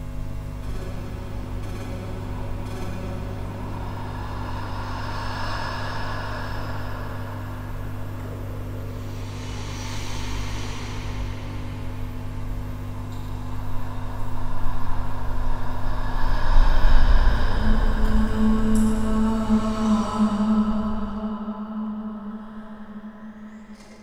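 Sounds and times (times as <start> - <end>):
dark ambient drone: 0.0 - 24.0.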